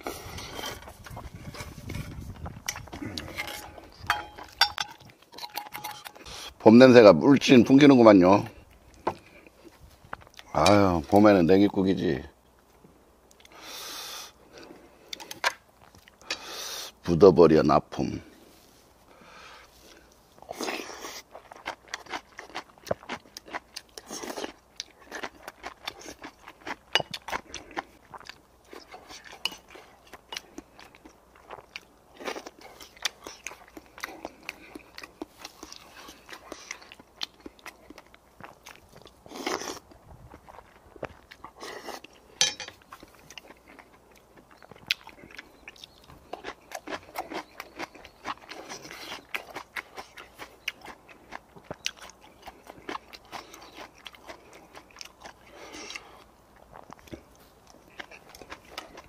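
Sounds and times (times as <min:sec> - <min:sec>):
man chewing: 0:00.0 - 0:06.6, 0:13.2 - 0:17.0, 0:19.0 - 0:59.0.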